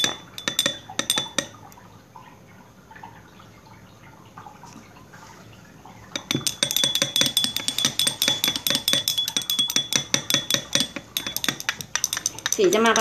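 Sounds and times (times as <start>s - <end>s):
utensil clinking against glass: 0.0s - 1.8s, 6.2s - 13.0s.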